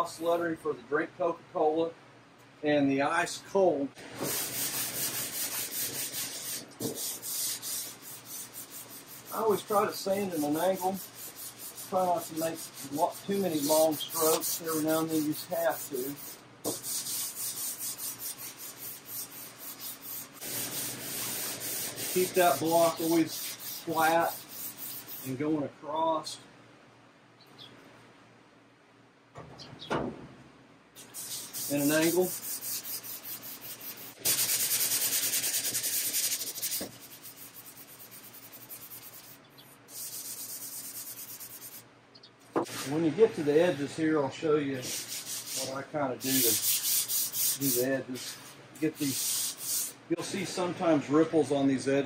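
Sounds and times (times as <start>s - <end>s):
sandpaper rubbing on metal panel: 4.0s - 25.5s, 31.0s - 41.9s, 44.8s - 50.6s.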